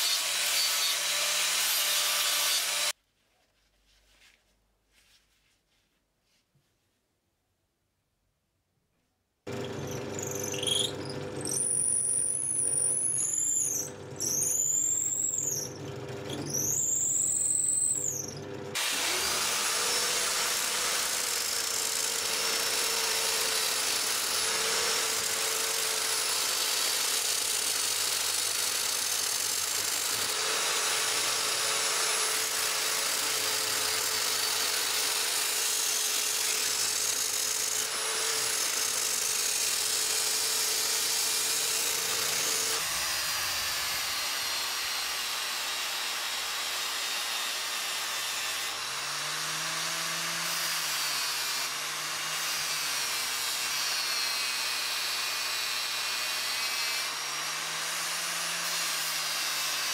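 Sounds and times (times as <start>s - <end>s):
electric drill spinning: 9.5s - 59.7s
drill press drilling into wood: 9.5s - 59.9s
angle grinder sanding wood: 16.3s - 21.6s, 22.2s - 59.9s.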